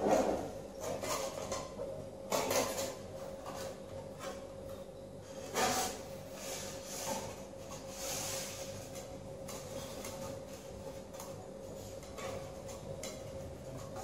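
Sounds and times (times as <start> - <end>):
foam model rubbing and handling: 5.3 - 12.5.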